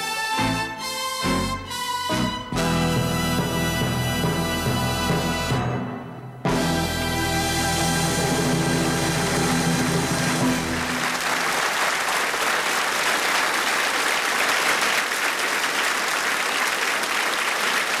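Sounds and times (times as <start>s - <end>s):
orchestral chord: 0.0s - 11.0s
audience applauding: 8.8s - 18.0s.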